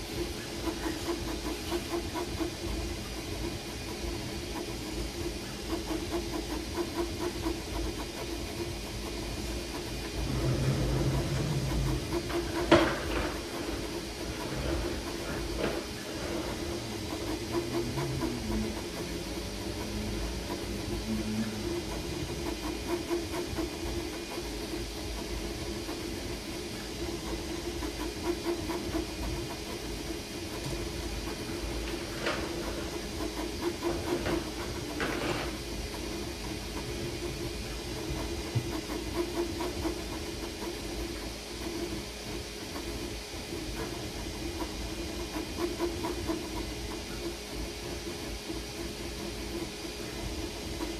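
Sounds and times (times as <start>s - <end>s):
fan hiss and hum: 0.0s - 50.9s
stepper motors whining: 9.8s - 24.0s.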